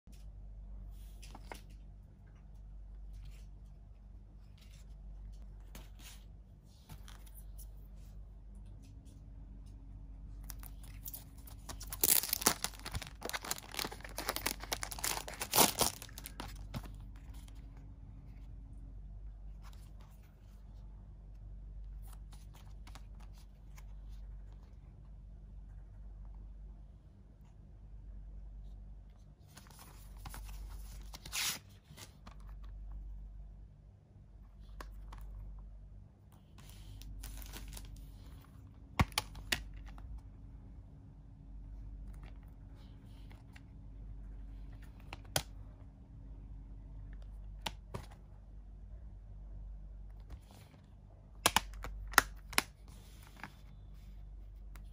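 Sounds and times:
handling of card and plastic: 0:10.3 - 0:18.4, 0:36.4 - 0:40.2
plastic wrap crinkling: 0:10.5 - 0:16.9.

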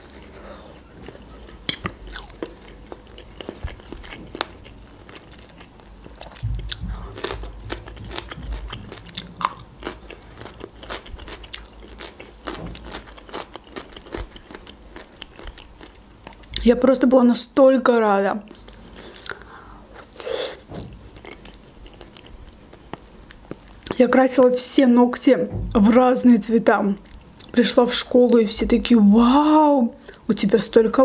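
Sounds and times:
chewing: 0:00.0 - 0:16.6, 0:18.4 - 0:24.0, 0:27.0 - 0:27.6.

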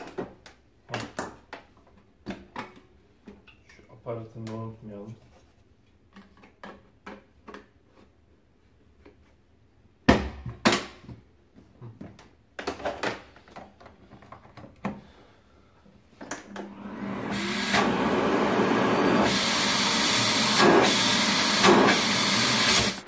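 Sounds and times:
vacuum cleaner motor running: 0:16.6 - 0:23.0.

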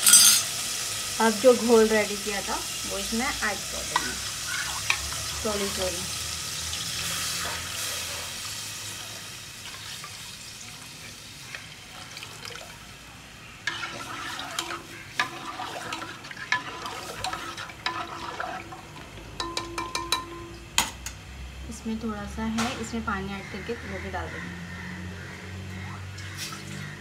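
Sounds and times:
spoon clinking against metal pot: 0:00.0 - 0:00.5, 0:19.4 - 0:21.1
batter sizzling in a pot: 0:00.0 - 0:19.8.

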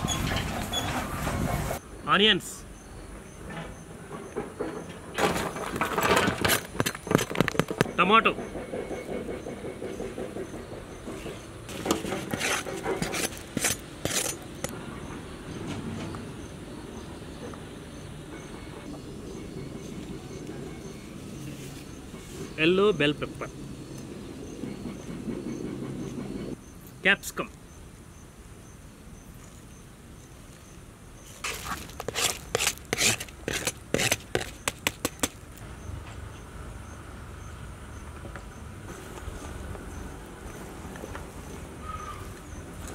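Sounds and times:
steel spoon scraping a plate: 0:11.7 - 0:14.7, 0:31.4 - 0:34.7.

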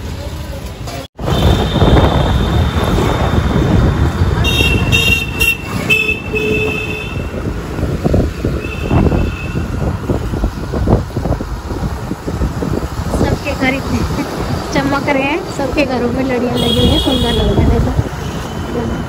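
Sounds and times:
road and engine rumble: 0:00.0 - 0:19.0
vehicle horns: 0:01.2 - 0:03.0, 0:04.4 - 0:07.5, 0:08.5 - 0:09.8, 0:16.5 - 0:19.0.

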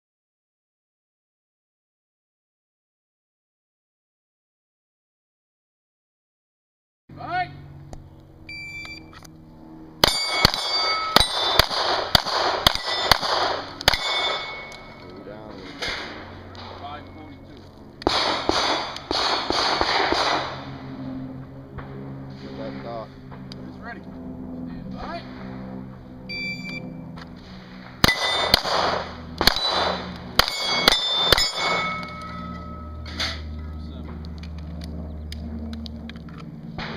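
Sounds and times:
shot timer beep: 0:08.5 - 0:09.1, 0:26.3 - 0:26.9
rapid pistol shots: 0:10.0 - 0:14.9, 0:18.0 - 0:20.6, 0:27.8 - 0:32.2
steel target plate clanging: 0:12.6 - 0:13.2, 0:13.9 - 0:15.1, 0:29.5 - 0:33.5.

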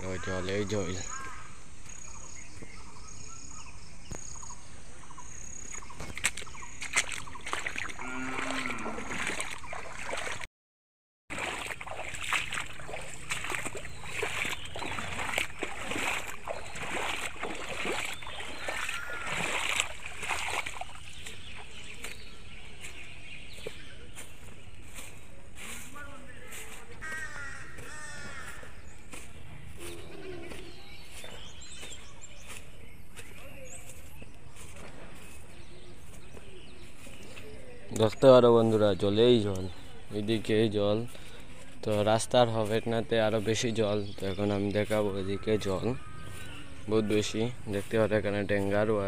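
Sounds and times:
footsteps splashing through water: 0:05.6 - 0:10.5, 0:11.3 - 0:49.0.

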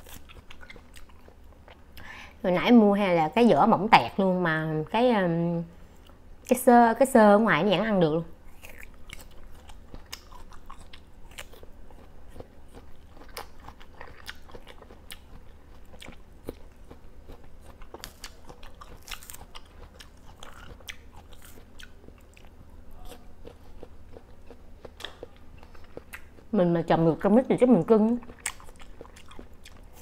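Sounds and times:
person chewing fruit: 0:00.0 - 0:02.2, 0:08.4 - 0:26.6, 0:28.0 - 0:30.0.

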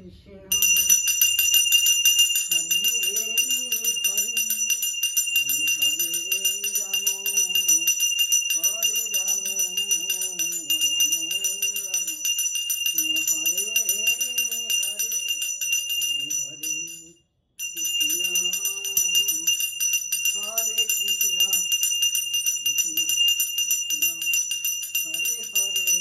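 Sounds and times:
small hand bell ringing rapidly: 0:00.5 - 0:26.0
person chanting a devotional tune: 0:01.6 - 0:26.0.

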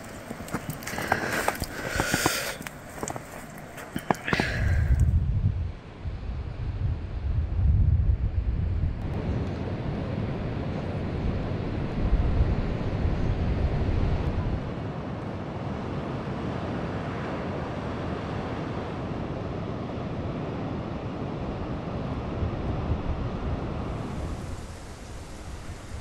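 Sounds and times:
waves breaking against rocks: 0:00.0 - 0:04.8
wind buffeting microphone: 0:00.0 - 0:14.8.

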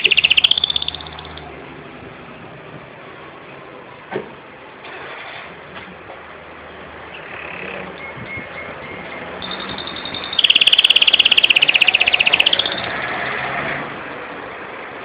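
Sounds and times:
canary singing trills: 0:00.0 - 0:01.5, 0:07.1 - 0:13.4.

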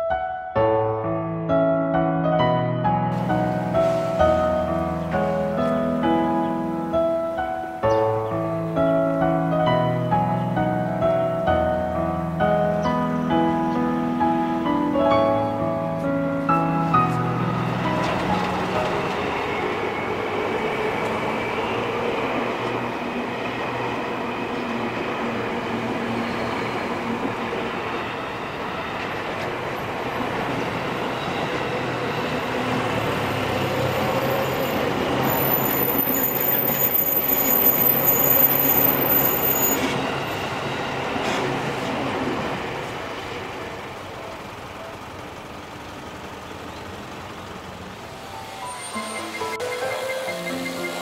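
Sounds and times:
electric train rumbling: 0:00.6 - 0:51.0
road traffic passing: 0:02.5 - 0:51.0
high whine of train wheels: 0:10.1 - 0:44.2, 0:47.6 - 0:51.0.

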